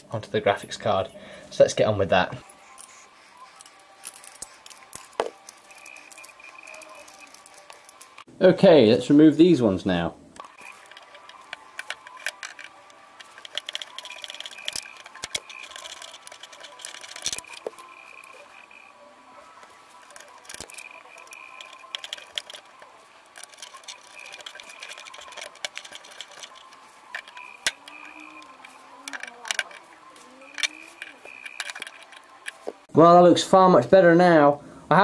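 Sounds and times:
small metallic clicks and scrapes: 2.5 - 8.3, 10.4 - 32.9.

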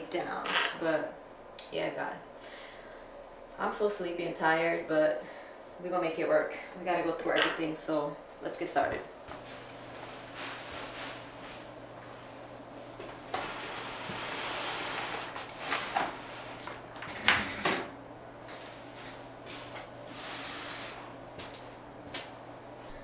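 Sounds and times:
drawer opening and closing: 13.3 - 17.9.

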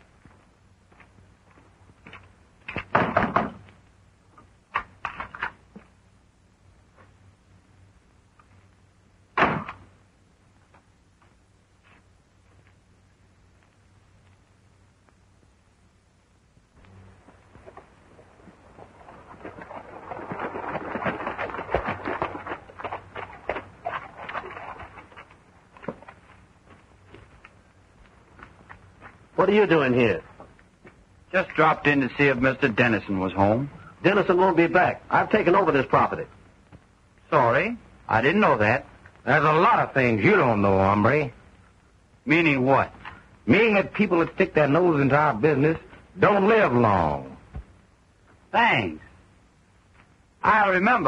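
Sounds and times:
horse hoofbeats on hard ground: 17.3 - 27.4.

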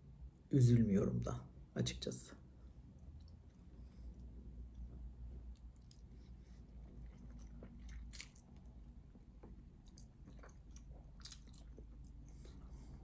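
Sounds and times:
person chewing with wet mouth smacks: 3.0 - 13.0.

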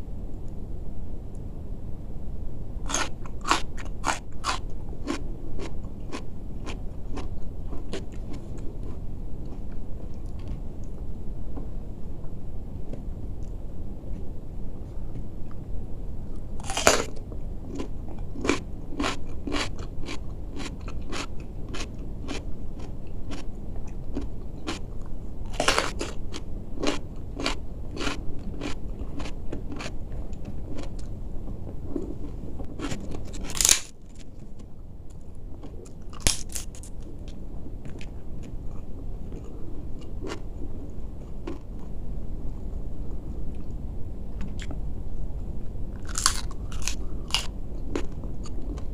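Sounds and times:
crunching bites into cucumber: 2.9 - 5.7, 16.6 - 17.1, 32.8 - 33.9, 36.1 - 37.0, 46.1 - 47.5
wet chewing: 25.5 - 31.1
crisp bite into cracker: 33.4 - 33.9.

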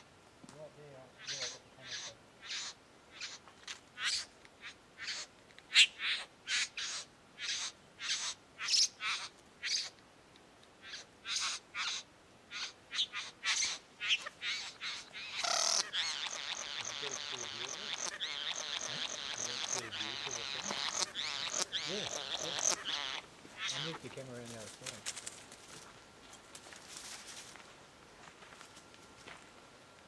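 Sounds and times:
bird giving harsh calls: 1.2 - 9.9, 10.8 - 24.1
bird wavering calls: 1.2 - 10.0, 10.8 - 24.1.

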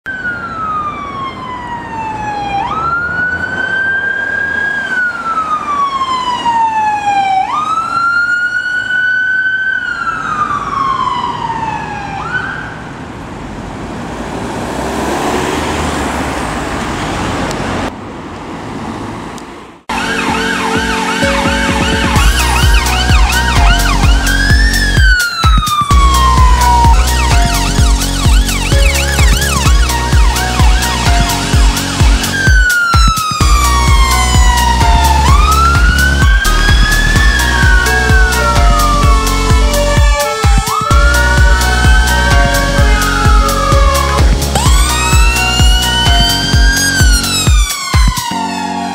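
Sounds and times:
yelping siren: 0.1 - 12.9, 19.9 - 48.9
ambulance siren wailing: 0.1 - 13.0, 19.9 - 48.9
van engine and tyre noise: 0.1 - 48.9
music: 19.9 - 48.9.

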